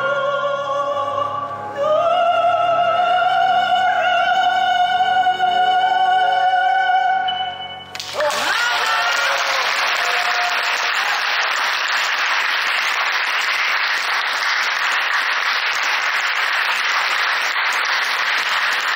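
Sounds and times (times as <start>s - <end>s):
audience applauding: 7.9s - 18.9s.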